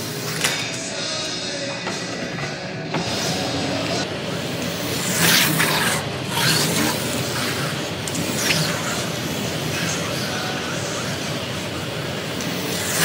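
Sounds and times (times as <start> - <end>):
scraping hiss of slot cars: 4.7 - 13.0.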